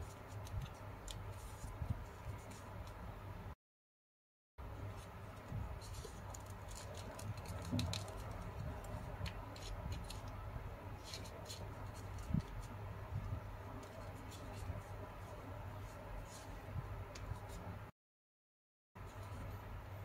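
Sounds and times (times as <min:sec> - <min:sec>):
paper rustling and crinkling: 0:05.0 - 0:10.4.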